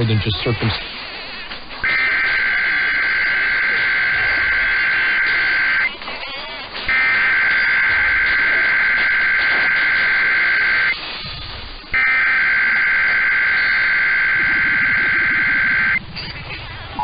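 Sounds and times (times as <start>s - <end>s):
radio noise: 0.0s - 17.0s
warbling digital data tones: 1.8s - 6.0s, 6.9s - 11.0s, 11.8s - 17.0s.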